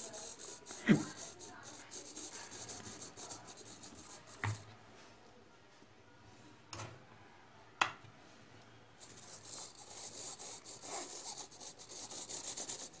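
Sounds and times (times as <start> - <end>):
hands rubbing model parts: 0.0 - 4.6.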